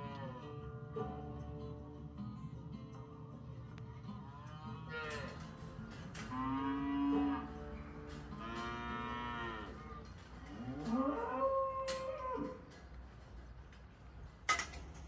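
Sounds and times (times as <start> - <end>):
cows mooing: 6.1 - 12.7.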